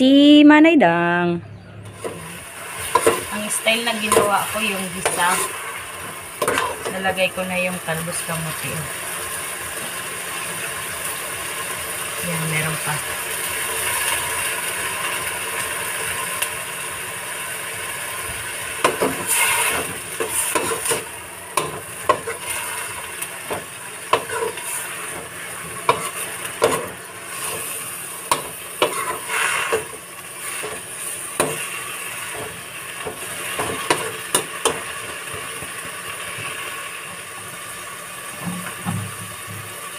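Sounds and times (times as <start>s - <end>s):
greens sizzling in a pot: 1.9s - 39.9s
metal spatula scraping a pot: 6.4s - 7.0s, 18.8s - 31.8s.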